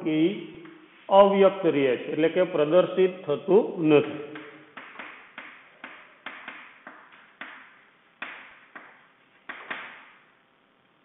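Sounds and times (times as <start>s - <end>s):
chalk tapping and scraping on board: 4.4s - 10.1s.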